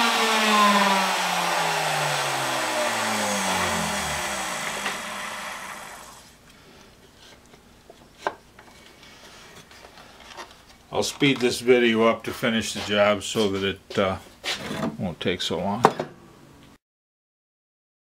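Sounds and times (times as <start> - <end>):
router motor whine spinning down: 0.0 - 6.3.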